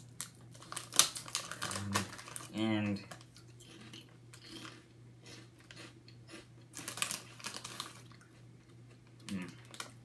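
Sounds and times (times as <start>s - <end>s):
foil bag crinkling: 0.0s - 3.4s, 6.8s - 8.2s.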